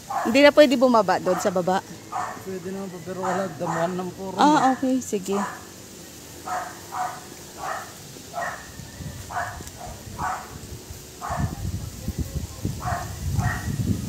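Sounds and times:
distant dog barking: 0.0s - 0.5s, 1.2s - 5.8s, 6.4s - 11.6s, 12.8s - 13.8s
wind rumble on microphone: 7.6s - 14.0s.

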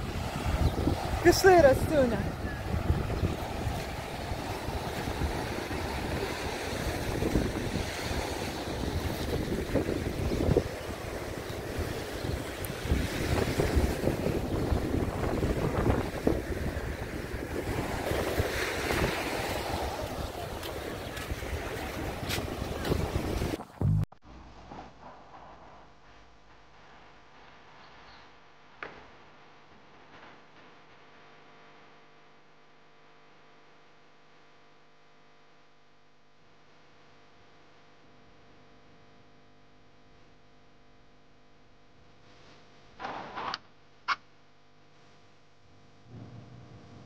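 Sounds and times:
sea surf washing on shore: 0.0s - 23.6s
wind buffeting microphone: 0.0s - 24.0s
faint steady hum: 26.0s - 43.0s, 43.6s - 47.0s.

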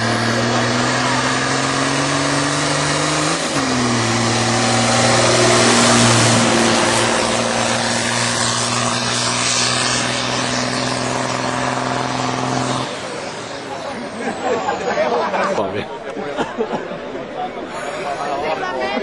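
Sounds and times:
tractor diesel engine droning: 0.0s - 16.1s.

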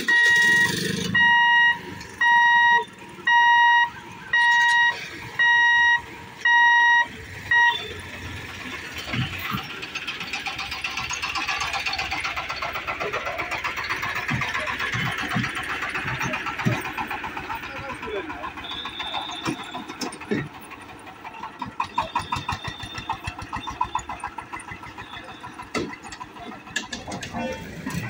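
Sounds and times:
warning buzzer beeping: 0.0s - 8.0s
vehicles thumping over rails: 6.3s - 28.0s
rattling and ticking: 7.2s - 28.0s.

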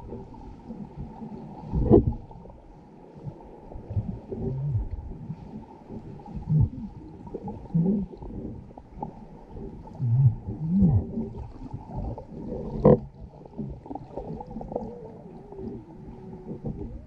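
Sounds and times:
low muffled moaning tones: 6.4s - 17.0s.

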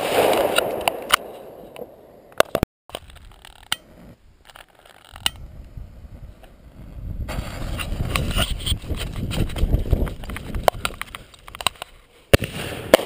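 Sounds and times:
sharp firework cracks: 0.0s - 1.6s, 12.3s - 13.0s.

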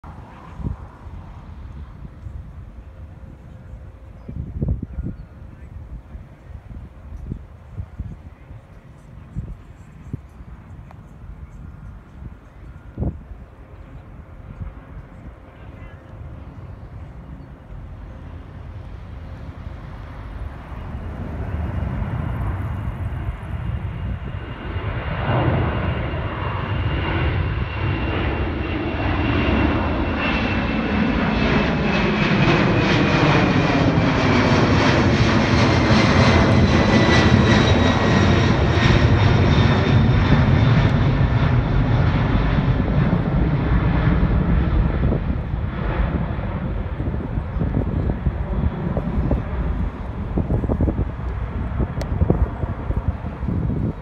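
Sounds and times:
jet airliner passing overhead: 0.0s - 54.0s
high fan whine: 44.8s - 54.0s.

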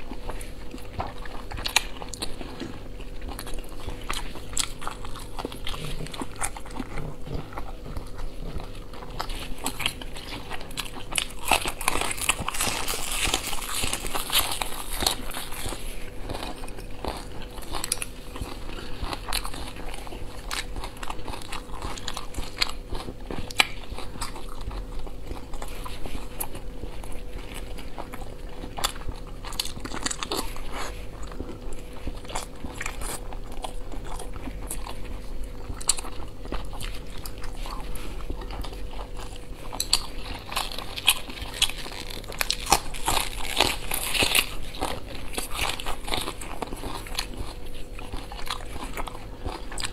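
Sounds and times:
chewing dumplings: 0.0s - 49.9s
crunching green onion: 0.0s - 49.9s.

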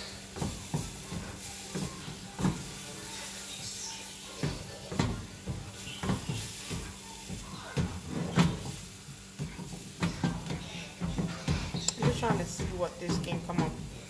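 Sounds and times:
spatula scraping and knocking on pan: 0.0s - 14.0s.

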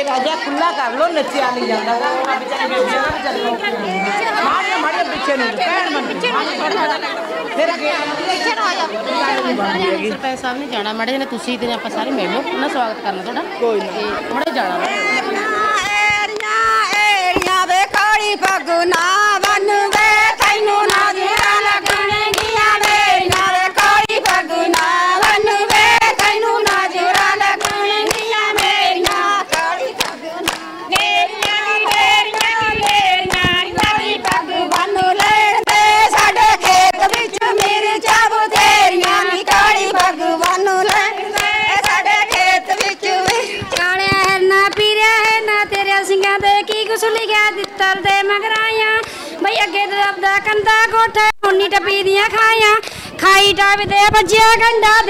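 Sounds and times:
hands clapping along: 0.0s - 0.4s, 15.7s - 49.2s
women singing in unison: 0.0s - 10.2s, 14.6s - 55.0s.

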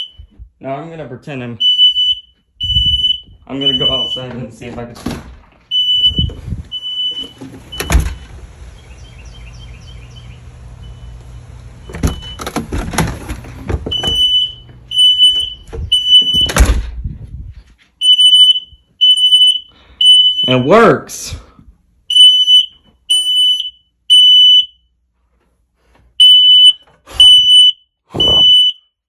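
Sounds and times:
smoke alarm beeping: 0.0s - 0.4s, 1.6s - 4.7s, 5.7s - 8.3s, 8.9s - 12.6s, 13.9s - 16.7s, 18.0s - 21.1s, 22.1s - 24.9s, 26.2s - 29.0s.

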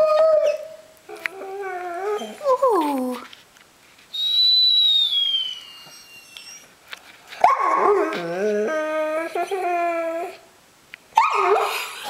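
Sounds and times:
puppy whining: 0.0s - 3.2s, 4.4s - 6.8s, 7.4s - 10.5s.

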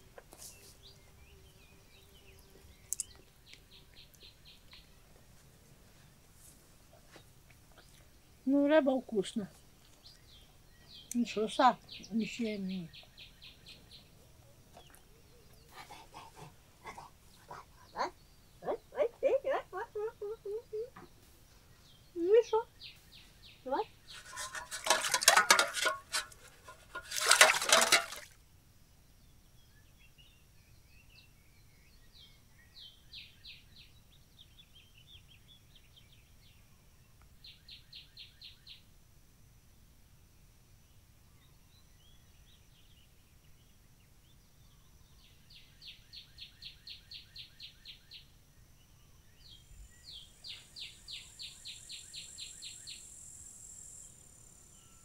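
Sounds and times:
insects chirping: 15.0s - 55.0s.

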